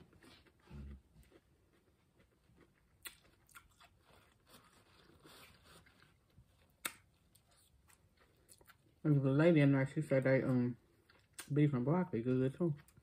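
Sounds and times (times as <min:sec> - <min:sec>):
chewing noodles: 0:00.0 - 0:09.0.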